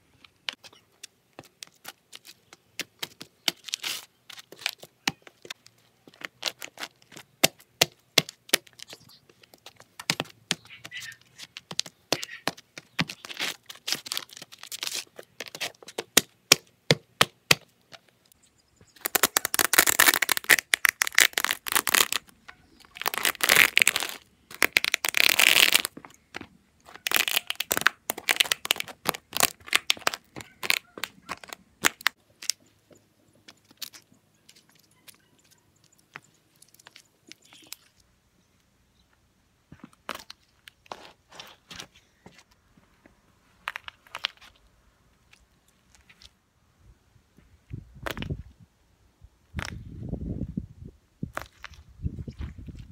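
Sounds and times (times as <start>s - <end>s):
dry pasta crunching underfoot: 19.0s - 32.7s.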